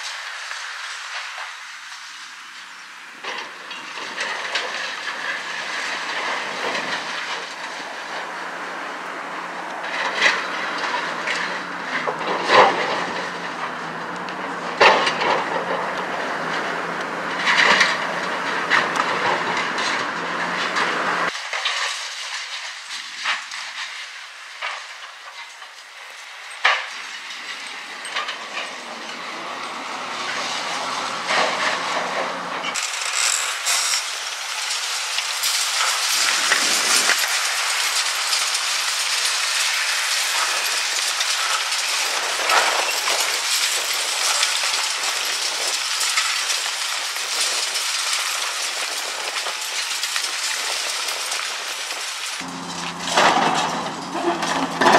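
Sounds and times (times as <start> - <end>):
concrete crunching and cracking: 3.1 - 54.9
falling rubble: 26.3 - 54.9.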